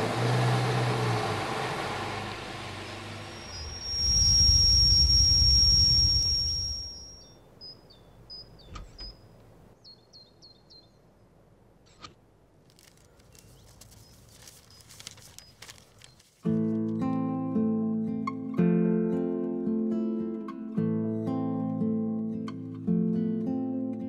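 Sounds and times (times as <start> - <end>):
vehicle engine with high whine: 0.0 - 7.2
birds chirping: 3.2 - 11.3.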